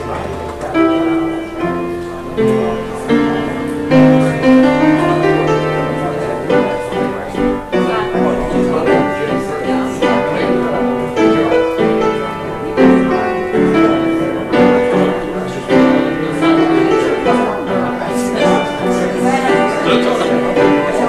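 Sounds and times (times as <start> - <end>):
keyboard playing slow chords: 0.0 - 21.0.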